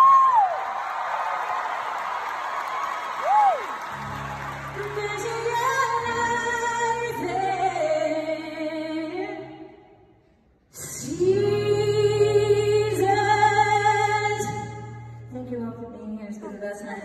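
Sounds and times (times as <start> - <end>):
woman singing into microphone: 4.8 - 9.7, 10.8 - 17.0.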